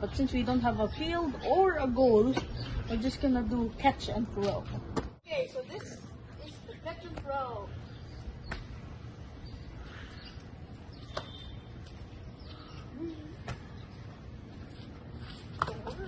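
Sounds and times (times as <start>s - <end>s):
birds chirping: 0.0s - 4.7s, 5.3s - 15.2s
football caught by hand slaps: 8.5s - 8.7s.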